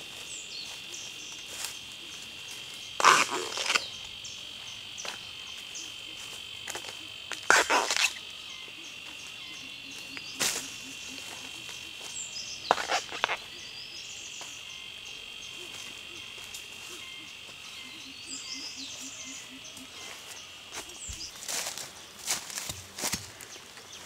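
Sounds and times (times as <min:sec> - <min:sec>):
footsteps on dry leaves: 0:00.0 - 0:08.2, 0:09.0 - 0:13.6, 0:19.9 - 0:24.0
insects droning: 0:00.0 - 0:24.0.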